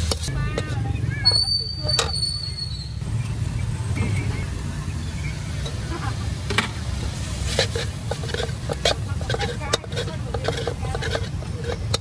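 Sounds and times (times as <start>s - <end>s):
metal ladle scraping a wok: 0.0s - 3.0s, 5.4s - 12.0s.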